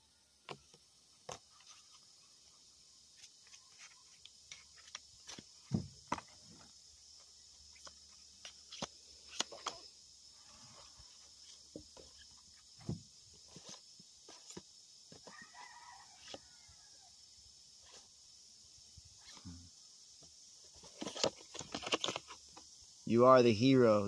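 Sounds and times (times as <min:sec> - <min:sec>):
high insect drone: 0:00.0 - 0:24.0
cards being shuffled: 0:03.2 - 0:05.5, 0:07.7 - 0:09.9, 0:20.8 - 0:22.4
dull thump: 0:05.6 - 0:06.3, 0:12.8 - 0:13.1.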